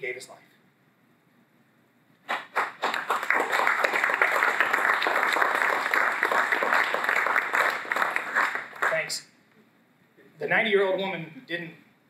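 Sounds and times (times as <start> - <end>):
audience applauding: 2.3 - 9.2.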